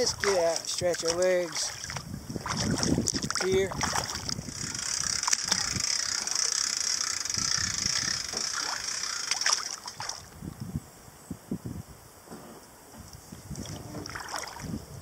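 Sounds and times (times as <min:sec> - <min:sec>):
paddle splashing water: 0:00.0 - 0:07.0, 0:08.2 - 0:10.3, 0:13.6 - 0:14.7.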